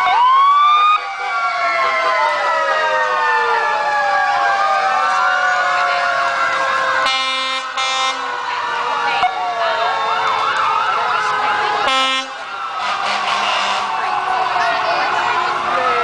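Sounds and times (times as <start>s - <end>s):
emergency sirens wailing: 0.0s - 16.0s
truck air horn blasts: 7.0s - 8.2s, 11.9s - 13.9s.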